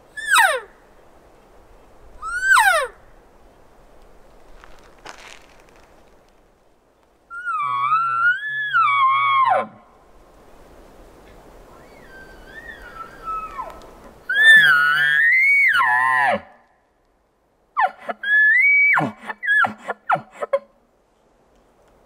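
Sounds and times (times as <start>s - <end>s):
elk bugling: 7.3s - 9.8s.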